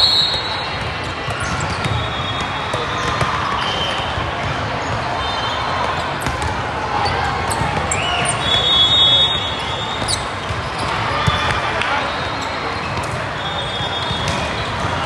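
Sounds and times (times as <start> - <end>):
shoe squeaks on court: 0.0 - 2.8, 7.0 - 13.2
voices echoing in a hall: 0.0 - 15.0
volleyball hits: 0.0 - 15.0.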